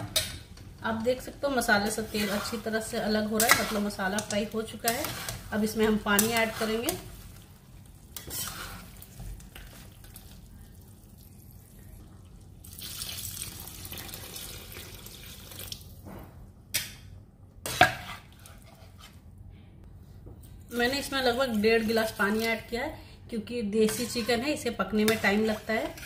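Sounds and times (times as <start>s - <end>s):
water pouring into metal pan: 12.6s - 15.9s.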